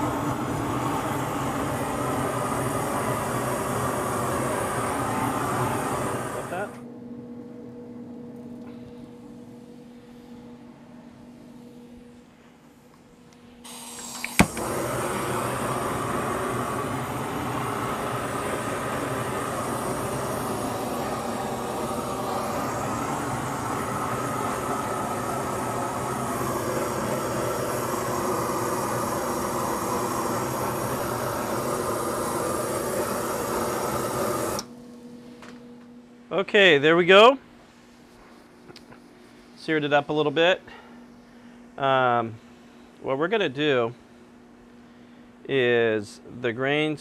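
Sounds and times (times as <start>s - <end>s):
gas hiss: 0.0s - 6.8s, 13.6s - 34.7s
rushing jet flame: 0.0s - 6.8s, 13.6s - 34.7s
torch igniter click: 13.6s - 20.9s, 21.6s - 34.7s.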